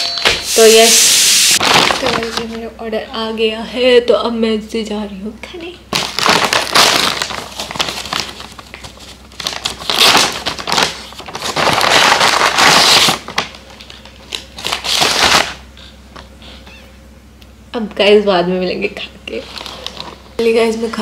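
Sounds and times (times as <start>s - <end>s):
paper bag rustling and crinkling: 1.6s - 2.6s, 5.9s - 15.6s.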